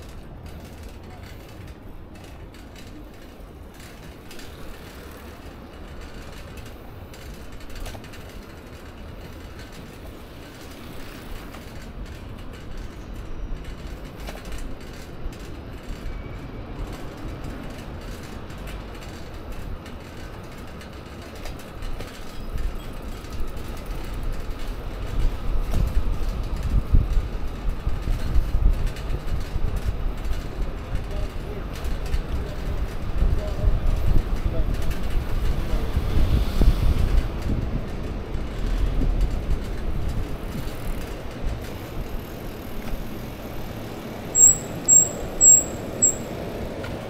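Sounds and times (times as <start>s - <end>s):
bicycle basket rattling: 0.0s - 47.0s
wind on microphone: 24.9s - 31.2s, 32.1s - 43.8s.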